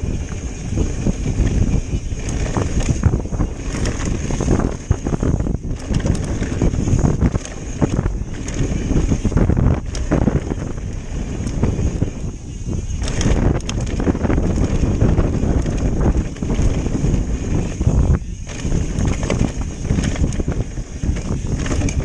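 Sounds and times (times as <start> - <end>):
wind buffeting microphone: 0.0 - 22.0
bike clicks and knocks: 0.1 - 22.0
tyres rolling on dirt: 0.2 - 11.8, 18.5 - 22.0.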